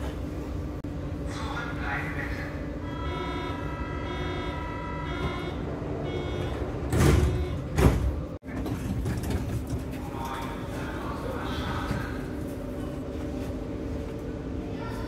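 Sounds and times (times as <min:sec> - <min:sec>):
electronic door warning chord: 0:02.8 - 0:07.8.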